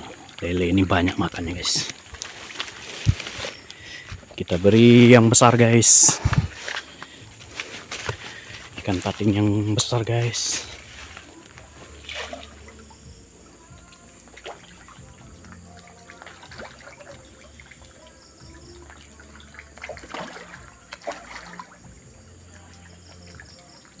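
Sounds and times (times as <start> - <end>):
fish splashing and slurping: 0.0 - 5.3, 6.0 - 24.0.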